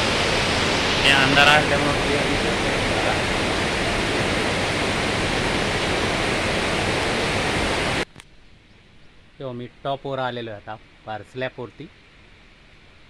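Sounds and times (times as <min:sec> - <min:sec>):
water rushing steadily: 0:00.0 - 0:08.0.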